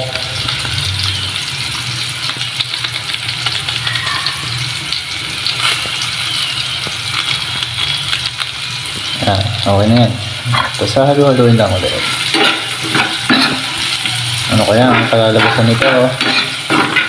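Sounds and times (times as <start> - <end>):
oil popping: 0.0 - 17.0
vegetables sizzling in hot oil: 0.0 - 17.0.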